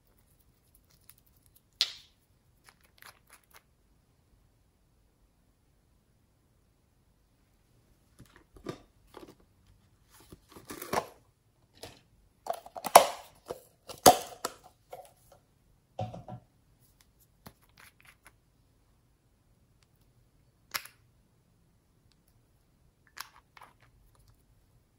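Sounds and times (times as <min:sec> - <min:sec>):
containers clicking and scraping: 0:10.2 - 0:15.4.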